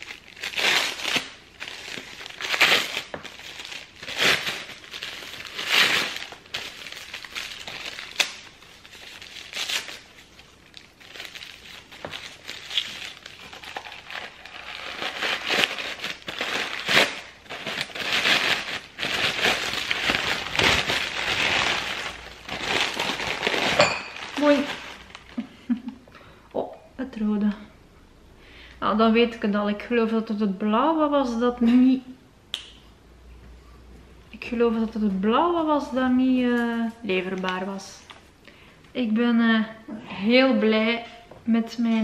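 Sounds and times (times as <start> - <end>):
wrapping paper crinkling: 0.0 - 25.8.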